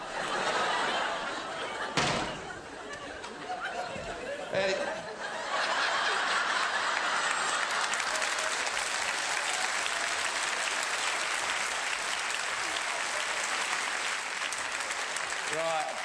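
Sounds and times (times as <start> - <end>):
audience applauding: 5.5 - 16.0.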